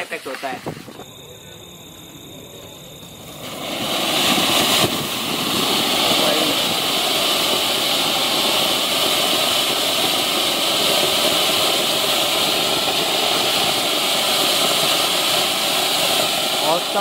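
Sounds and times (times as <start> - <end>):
firework fountain hissing: 0.0 - 17.0.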